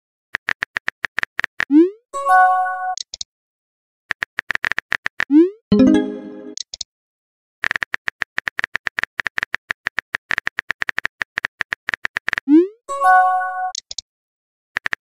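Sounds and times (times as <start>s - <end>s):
electronic chime: 5.7s - 6.6s.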